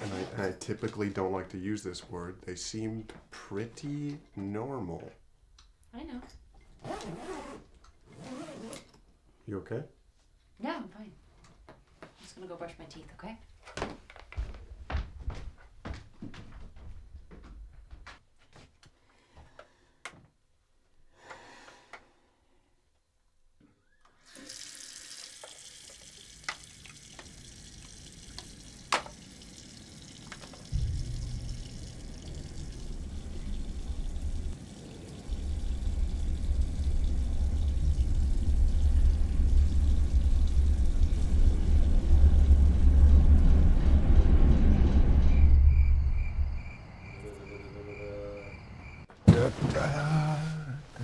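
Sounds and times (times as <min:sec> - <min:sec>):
sink tap running: 0:24.3 - 0:41.3
sudden loud hit: 0:30.7 - 0:34.5
deep low rumble: 0:30.7 - 0:46.9.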